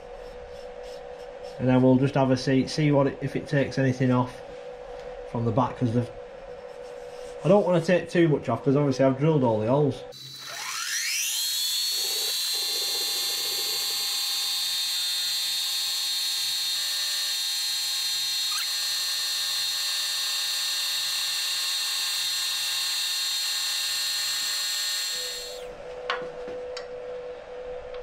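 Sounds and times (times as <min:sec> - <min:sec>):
milling machine spindle whine: 0:10.2 - 0:25.7.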